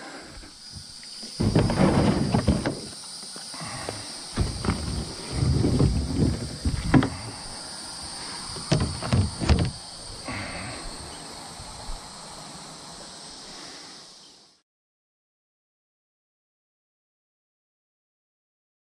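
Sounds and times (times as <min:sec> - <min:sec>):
insects droning: 0:00.0 - 0:14.6.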